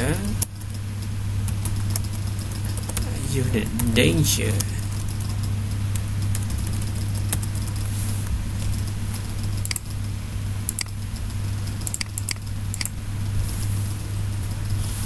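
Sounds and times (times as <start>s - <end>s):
low hum: 0.0s - 15.0s
mouse and keyboard clicks: 8.6s - 9.9s, 10.7s - 11.0s, 11.8s - 12.9s.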